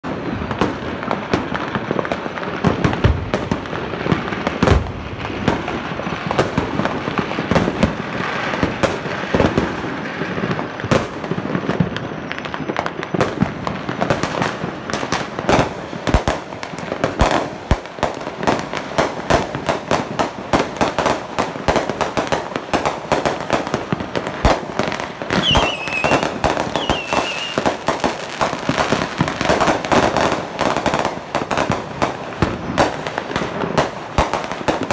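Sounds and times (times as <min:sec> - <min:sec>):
firecrackers crackling: 0:00.0 - 0:34.9
fireworks booming: 0:00.0 - 0:34.9.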